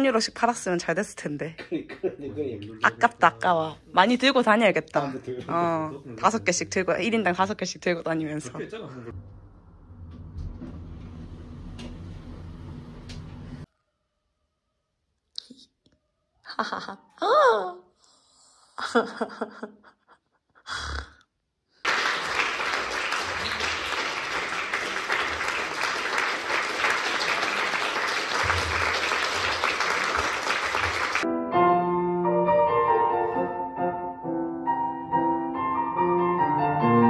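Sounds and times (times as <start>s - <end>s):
voice: 0.0s - 9.1s, 16.5s - 17.9s
audience applause: 21.8s - 31.3s
piano playing chords: 30.3s - 37.0s.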